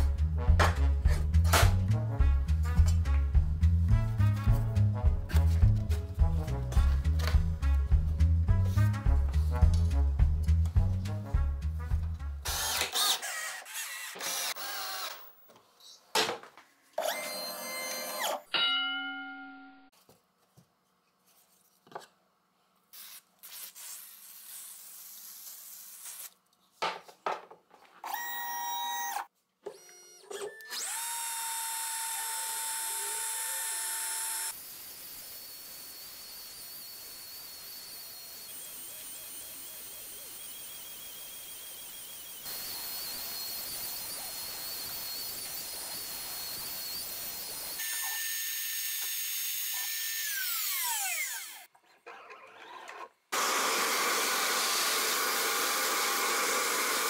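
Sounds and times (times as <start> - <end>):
cordless drill driving screws: 12.4 - 15.5, 17.0 - 18.5, 28.0 - 51.7, 52.6 - 57.0
cnc router spindle whining: 30.6 - 51.6.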